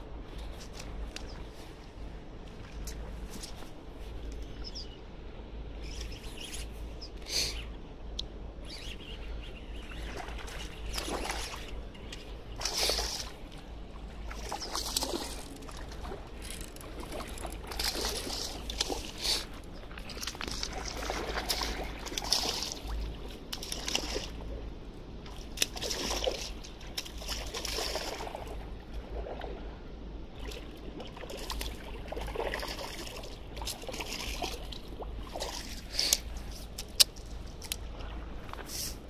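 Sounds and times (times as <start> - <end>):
water sloshing and splashing: 9.8 - 39.0.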